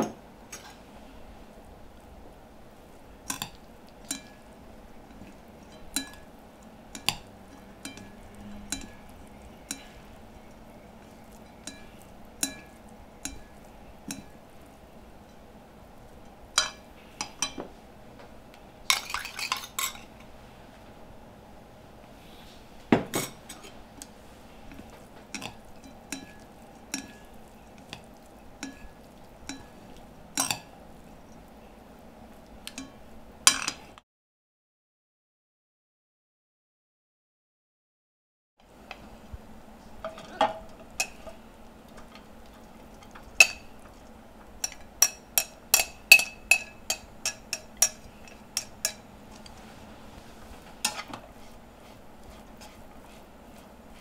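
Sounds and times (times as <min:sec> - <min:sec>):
utensil clinking against dish: 0:03.3 - 0:04.5, 0:06.9 - 0:14.4, 0:24.7 - 0:30.7, 0:32.7 - 0:33.8, 0:40.0 - 0:42.3, 0:44.6 - 0:49.6.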